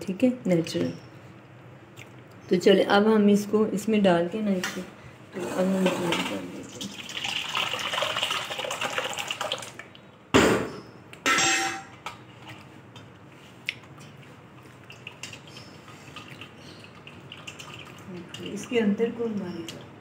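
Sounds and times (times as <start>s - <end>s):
loud knock: 10.4s - 10.7s
metal clank ringing: 11.3s - 12.0s.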